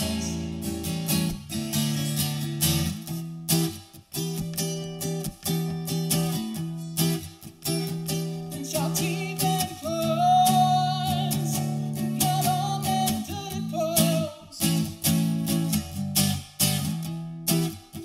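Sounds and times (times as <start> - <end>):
man singing: 0.0 - 1.0, 8.4 - 15.0
acoustic guitar strumming: 0.0 - 18.0.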